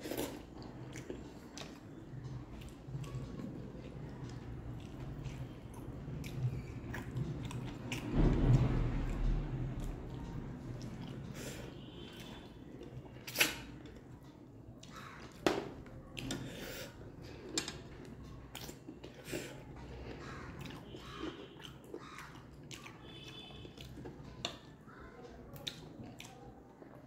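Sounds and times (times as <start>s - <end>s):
person chewing and sucking meat: 17.0s - 24.3s.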